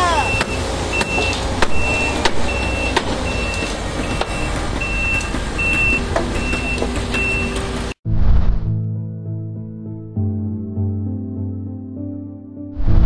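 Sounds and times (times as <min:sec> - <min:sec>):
reversing alarm beeping: 0:00.1 - 0:07.6
sharp knocks: 0:00.4 - 0:07.9
short whoosh: 0:08.1 - 0:08.8, 0:12.8 - 0:13.0.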